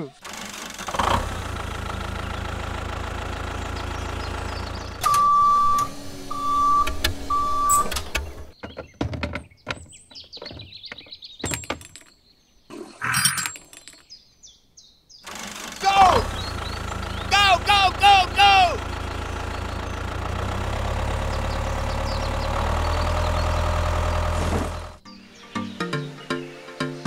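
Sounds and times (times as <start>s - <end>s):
tractor engine running: 0.0s - 8.6s, 15.2s - 25.0s
short beeps: 5.0s - 7.9s.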